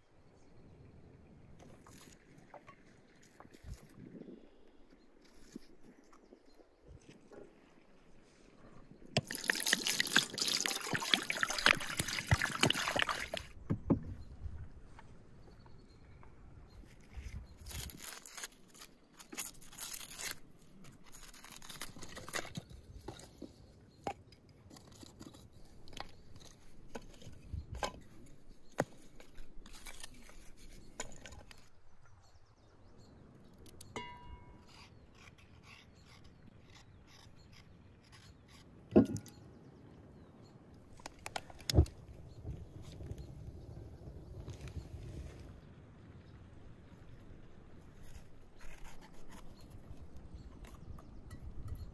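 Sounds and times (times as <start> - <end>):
water pouring into bowl: 9.2 - 13.5
knife scraping carrot: 28.7 - 31.6, 34.6 - 39.4, 48.1 - 50.9.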